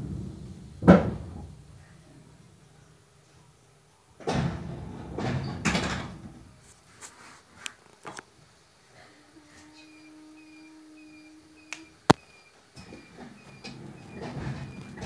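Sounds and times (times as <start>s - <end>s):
pneumatic doors rush of air: 12.8s - 15.0s.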